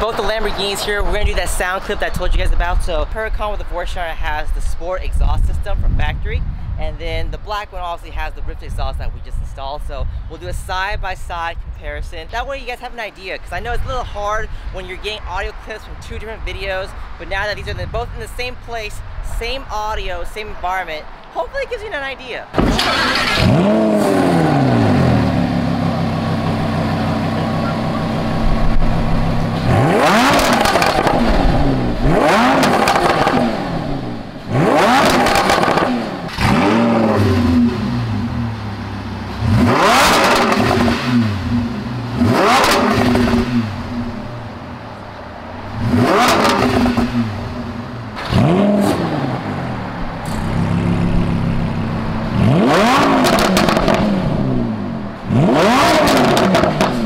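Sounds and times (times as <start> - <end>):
sports car engine revving: 22.6 - 57.0.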